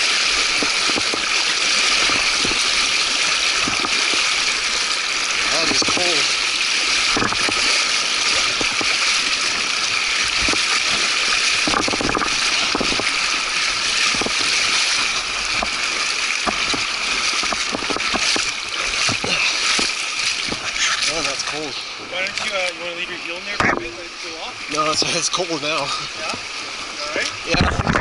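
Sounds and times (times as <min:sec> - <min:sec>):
river rushing over rocks: 0:00.0 - 0:23.0.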